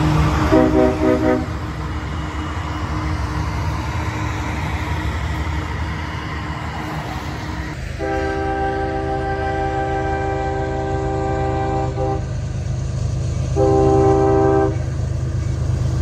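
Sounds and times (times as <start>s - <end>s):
locomotive air horn: 0.0s - 1.9s, 7.9s - 12.4s, 13.5s - 15.0s
freight train rumbling on bridge: 0.0s - 16.0s.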